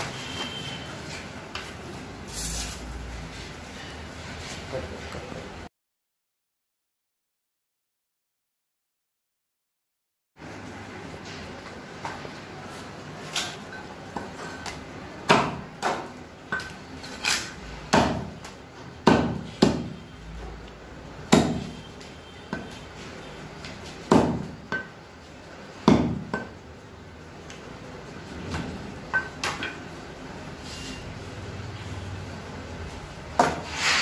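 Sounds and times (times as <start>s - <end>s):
cleaver chopping on wooden block: 17.9s - 18.4s, 19.0s - 20.0s, 21.3s - 21.7s, 24.1s - 24.9s, 25.8s - 26.5s.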